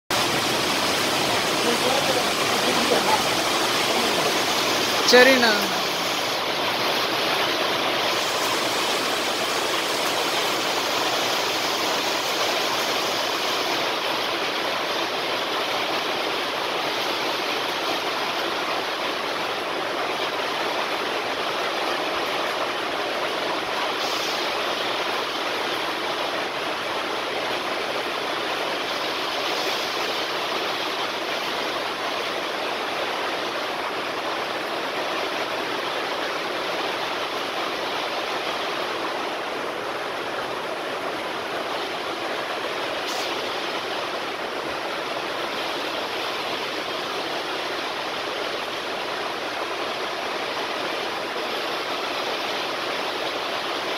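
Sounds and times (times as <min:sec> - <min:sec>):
steady rushing noise: 0:00.1 - 0:16.7.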